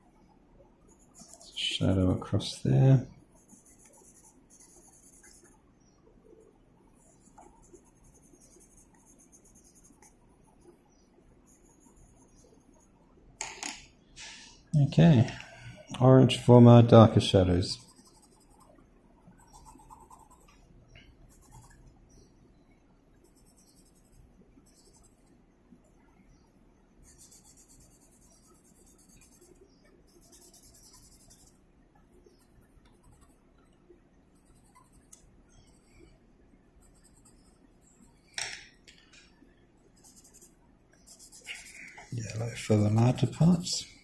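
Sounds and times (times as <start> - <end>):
pencils scratching on paper: 0.9 - 5.6, 7.0 - 10.7, 11.4 - 13.0, 17.5 - 18.8, 19.4 - 20.5, 21.3 - 21.8, 23.2 - 25.3, 27.0 - 31.6, 32.2 - 33.4, 34.3 - 36.1, 36.8 - 38.3, 39.9 - 43.9.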